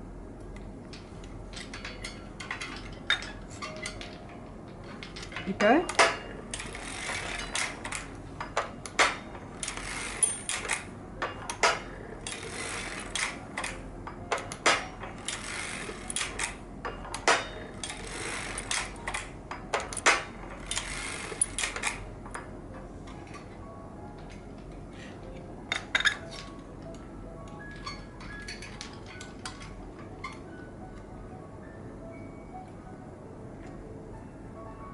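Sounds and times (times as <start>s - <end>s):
knitting machine clattering: 0.7s - 22.5s, 27.6s - 30.5s.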